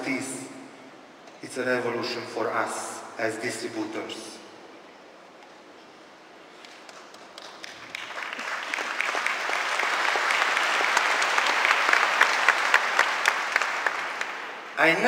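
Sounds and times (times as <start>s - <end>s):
nearby claps: 6.6s - 14.5s
large audience applauding: 6.7s - 14.6s.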